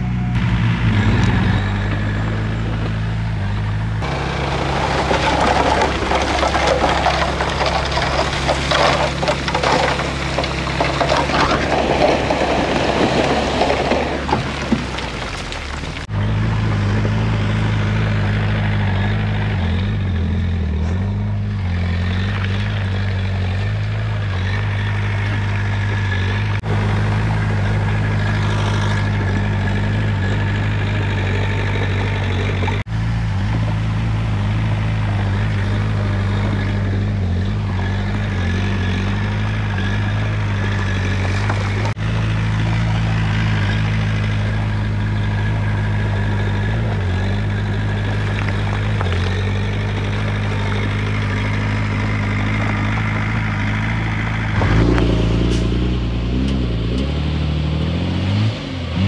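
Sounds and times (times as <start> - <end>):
bulldozer diesel engine droning: 0.0 - 59.0.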